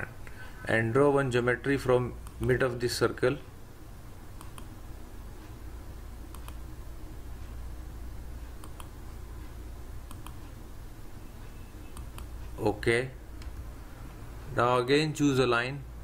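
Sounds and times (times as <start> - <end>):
computer mouse clicking: 4.4 - 4.7, 6.3 - 6.6, 8.4 - 9.0, 10.0 - 10.6, 11.9 - 12.3.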